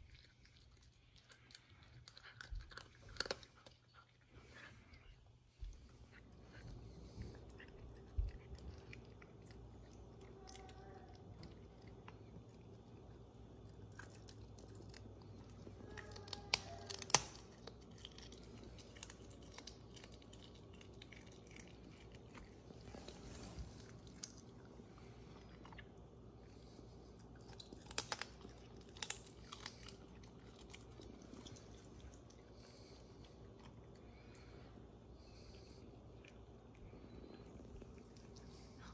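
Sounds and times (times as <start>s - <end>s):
cat chewing raw meat: 0.0s - 38.9s
bone crunches: 16.1s - 20.5s.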